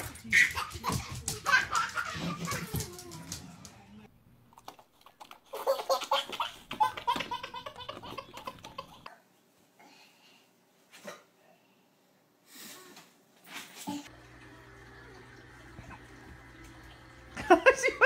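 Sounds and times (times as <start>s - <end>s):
baby belly laughing: 0.0s - 3.1s, 5.5s - 9.1s
person laughing: 17.4s - 18.0s.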